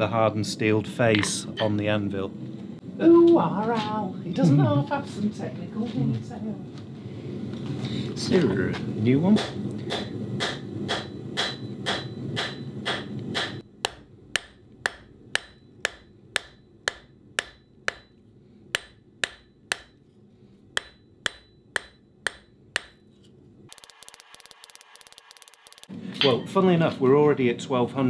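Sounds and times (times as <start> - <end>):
hammer striking steel on anvil: 9.4 - 20.1, 20.7 - 23.1.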